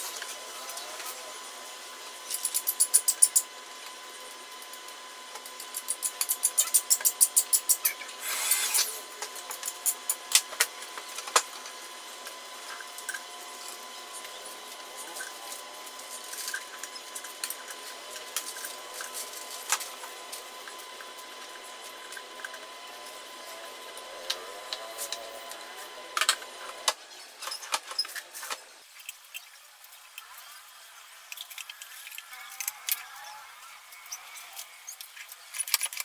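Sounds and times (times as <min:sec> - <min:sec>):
electric drill running: 0:02.6 - 0:27.0.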